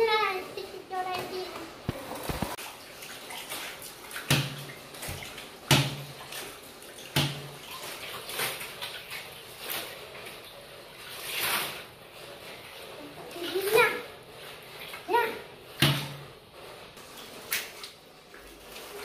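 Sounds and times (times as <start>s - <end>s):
water sloshing and splashing: 0.0s - 19.0s.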